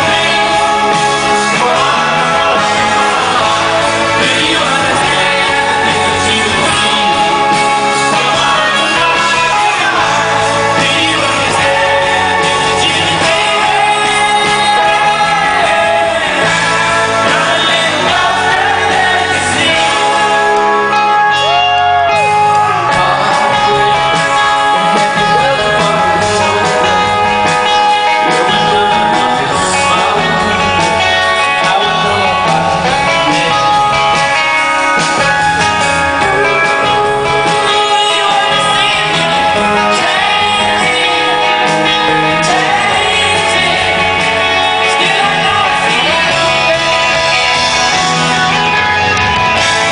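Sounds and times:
man singing: 0.0 - 48.9
live rock band playing: 0.0 - 49.9.

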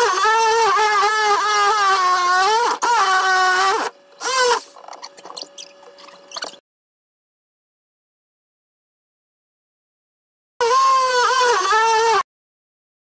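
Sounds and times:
multi-tool cutting wood: 0.0 - 6.6, 10.6 - 12.3.

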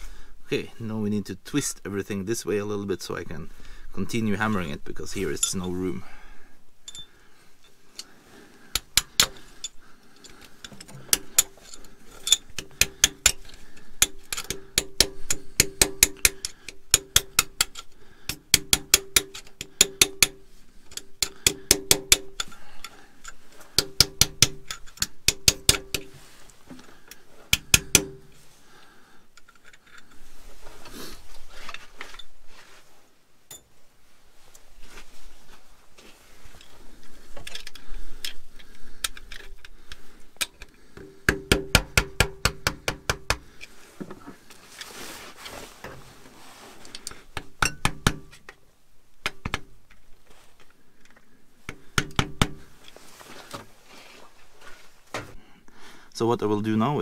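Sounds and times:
handling noises: 6.8 - 18.5, 20.3 - 41.2, 41.8 - 48.6, 49.4 - 55.5
hammer striking steel: 14.0 - 20.4.

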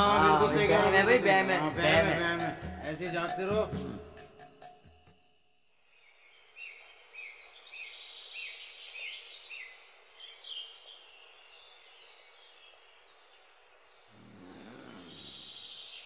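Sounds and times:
soft steady hiss: 5.8 - 16.0
birds chirping: 6.1 - 16.0.

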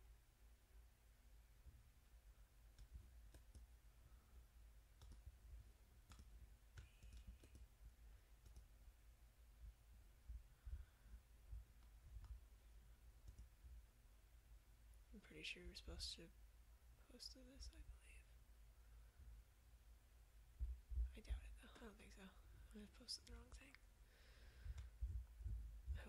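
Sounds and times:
low steady hum: 0.0 - 26.0
faint computer clicks: 2.7 - 3.7, 5.0 - 5.4, 6.0 - 7.7, 8.4 - 8.7, 13.2 - 13.5.

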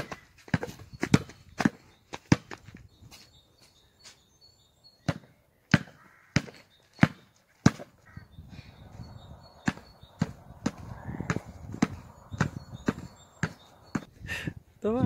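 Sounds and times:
basketball bouncing on asphalt: 0.0 - 2.9, 5.0 - 8.2, 9.1 - 14.1.

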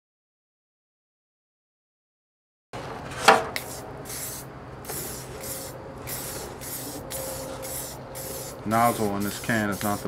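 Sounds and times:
spray paint can hissing: 3.5 - 10.0.

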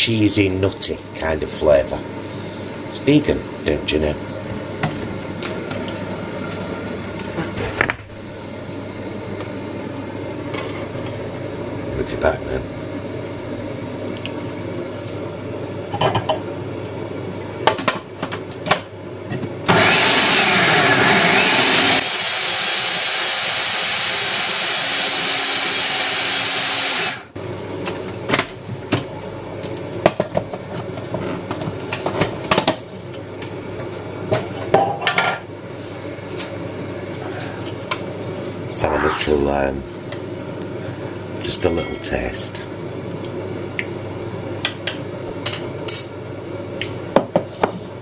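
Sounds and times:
food processor blending: 19.7 - 27.3.

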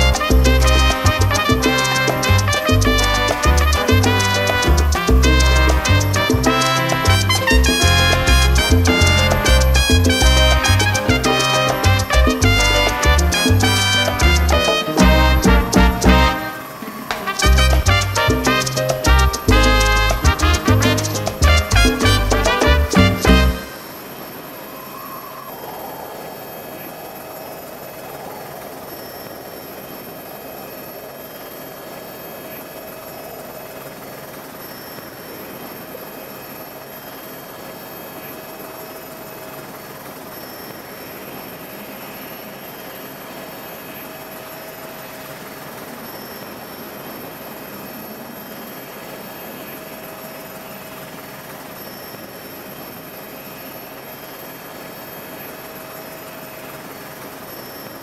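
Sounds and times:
helicopter engine and rotor: 23.6 - 58.0.

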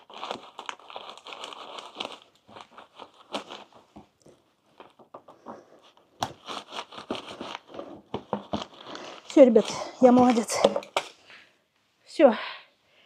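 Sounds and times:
knife cutting hard plastic: 5.3 - 11.2.

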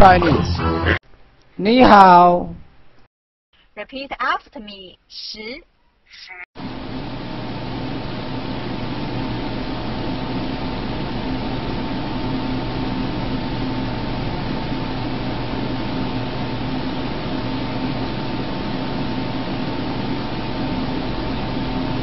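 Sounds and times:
constant low hum: 6.6 - 22.0.

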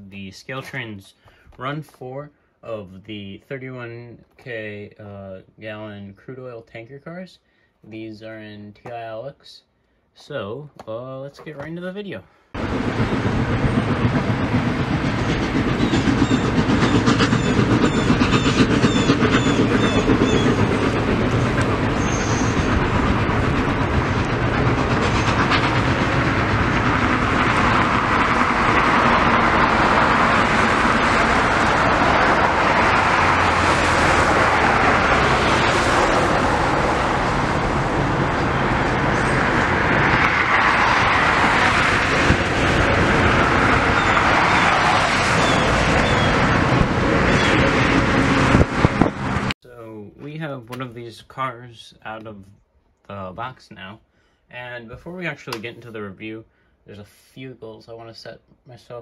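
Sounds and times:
clickety-clack of passing cars: 12.6 - 49.6
train wheels on rails: 12.6 - 49.6.

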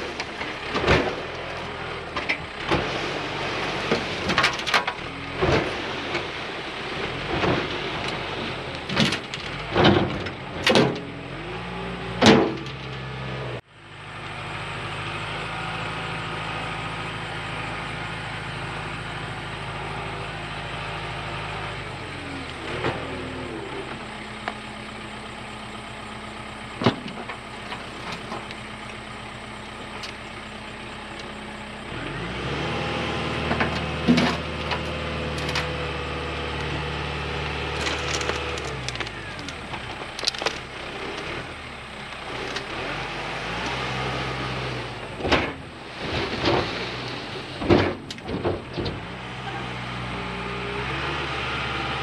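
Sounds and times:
excavator diesel engine: 0.0 - 52.0
metal clanks and knocks: 8.9 - 11.2, 47.6 - 49.1.

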